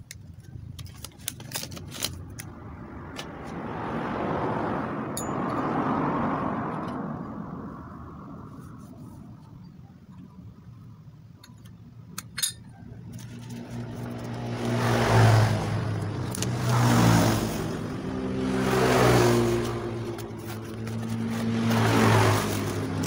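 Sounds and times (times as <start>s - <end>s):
light metal clinks: 11.4s - 12.9s
engine revving: 13.1s - 23.0s.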